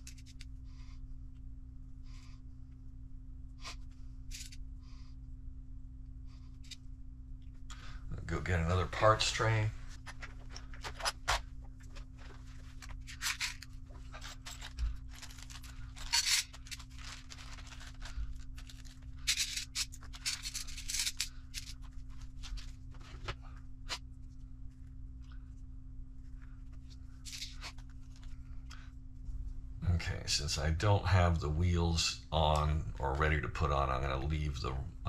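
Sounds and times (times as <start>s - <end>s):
faint low hum: 0.0s - 35.0s
plastic bag rustling and crinkling: 9.8s - 23.4s.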